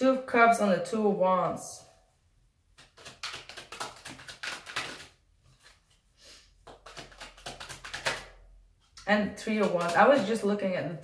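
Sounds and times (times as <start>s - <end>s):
cards being shuffled: 2.8s - 6.0s, 6.6s - 8.3s, 9.6s - 10.3s.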